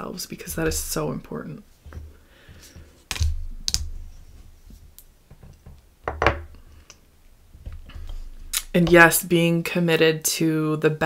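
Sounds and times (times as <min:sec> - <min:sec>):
dull low thuds: 0:00.4 - 0:02.3, 0:07.4 - 0:09.3.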